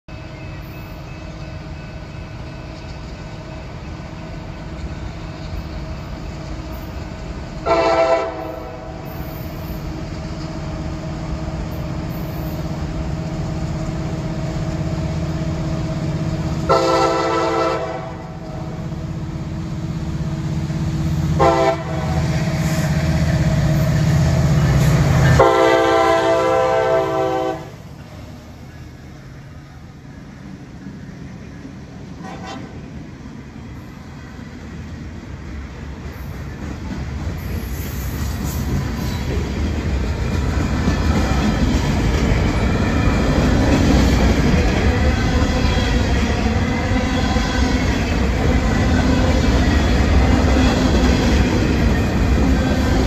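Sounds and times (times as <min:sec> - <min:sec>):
locomotive rumble: 0:00.1 - 0:53.0
locomotive horn blasts: 0:07.6 - 0:09.0, 0:16.7 - 0:18.4, 0:21.4 - 0:22.2, 0:25.3 - 0:27.8, 0:32.2 - 0:32.8.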